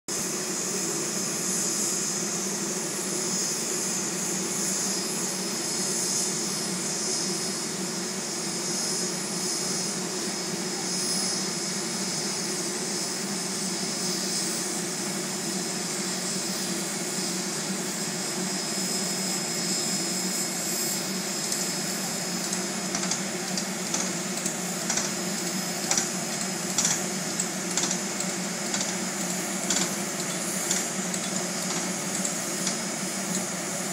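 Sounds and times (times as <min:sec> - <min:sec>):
steam hissing: 0:00.1 - 0:33.9
sharp clicks: 0:22.4 - 0:25.1, 0:26.7 - 0:29.0.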